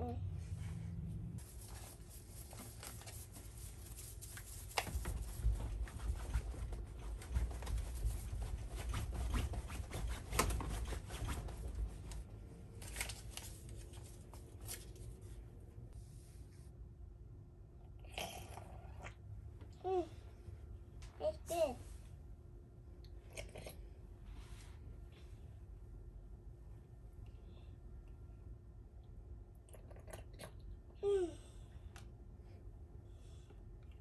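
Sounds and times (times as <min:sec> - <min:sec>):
paper packet rustling: 0:01.4 - 0:05.4, 0:12.7 - 0:15.2.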